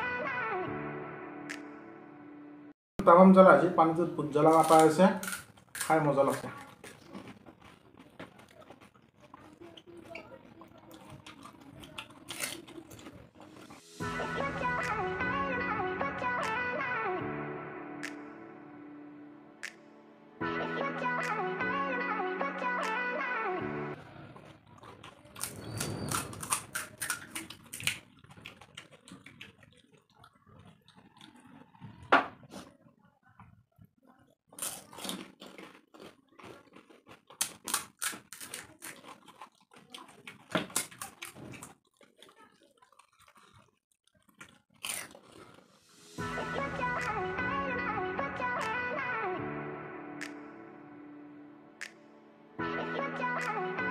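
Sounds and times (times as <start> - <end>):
crunching and chewing: 4.3 - 14.0, 23.9 - 46.2
crisp shells cracking: 4.4 - 13.7, 24.7 - 30.3, 34.5 - 45.8.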